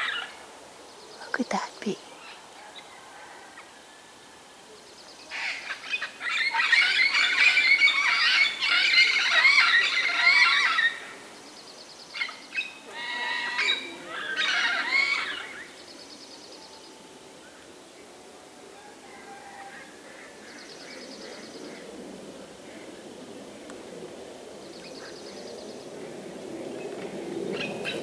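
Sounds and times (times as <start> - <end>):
parakeets screeching: 13.0 - 15.6.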